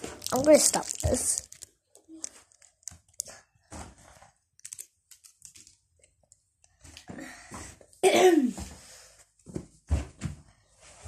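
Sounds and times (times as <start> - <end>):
rustling: 0.0 - 5.7
person coughing: 8.0 - 8.7.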